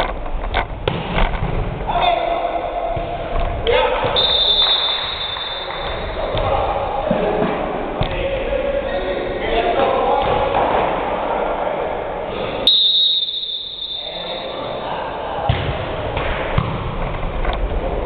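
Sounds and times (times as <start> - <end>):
echoing gym chatter: 1.8 - 18.0
referee's whistle blast: 4.2 - 6.2, 12.6 - 14.8.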